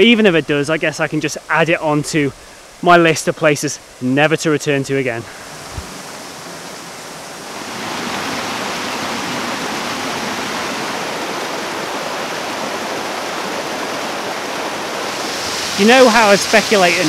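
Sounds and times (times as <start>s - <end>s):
waterfall roaring over rocks: 5.1s - 17.0s.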